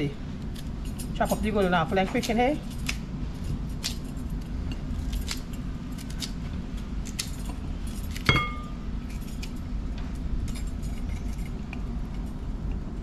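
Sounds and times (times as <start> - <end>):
steady low rumble: 0.0 - 13.0
knife clink on ceramic bowl: 8.3 - 8.8.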